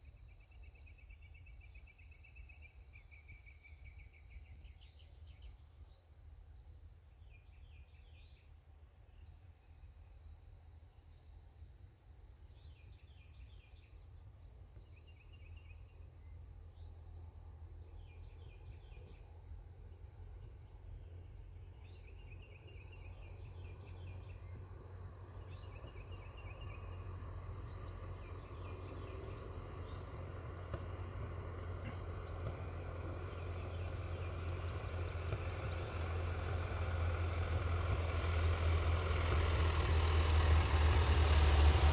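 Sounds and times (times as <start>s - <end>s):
aircraft drone: 9.8s - 41.9s.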